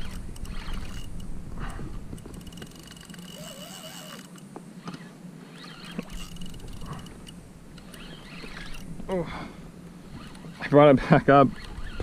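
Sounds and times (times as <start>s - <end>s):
fishing reel clicking rapidly: 0.0s - 1.3s, 2.1s - 8.9s, 10.1s - 12.0s.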